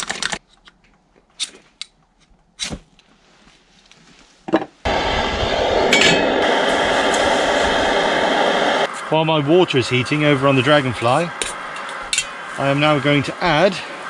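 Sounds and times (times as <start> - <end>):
camping stove burner roaring: 4.8 - 14.0.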